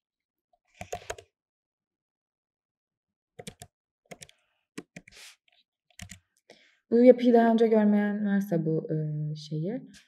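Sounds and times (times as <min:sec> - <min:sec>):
typing on computer keyboard: 0:00.8 - 0:01.3, 0:03.4 - 0:05.2, 0:05.9 - 0:06.2.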